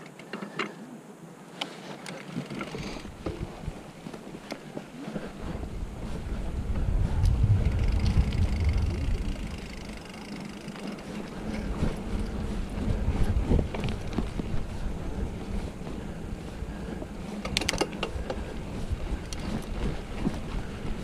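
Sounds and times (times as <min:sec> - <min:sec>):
bike clicks and rattles: 0:01.9 - 0:21.0
bike tyre noise: 0:02.3 - 0:21.0
wind rumble on microphone: 0:03.0 - 0:04.0, 0:05.1 - 0:10.2, 0:11.0 - 0:21.0.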